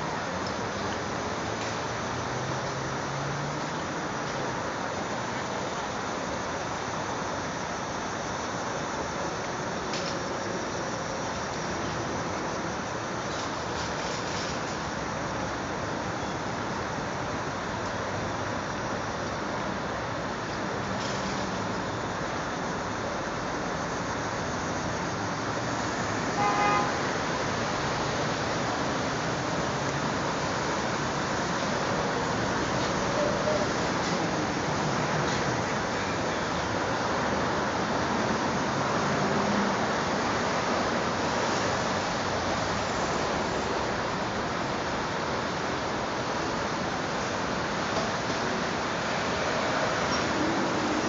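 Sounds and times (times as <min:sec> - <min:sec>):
city street traffic: 0:00.0 - 0:51.0
short car horn toot: 0:26.4 - 0:27.0.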